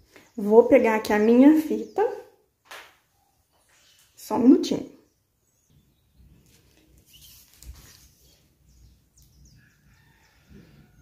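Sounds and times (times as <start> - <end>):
faint bird chirps: 5.0 - 11.0
tape measure soft rustles: 6.4 - 8.6.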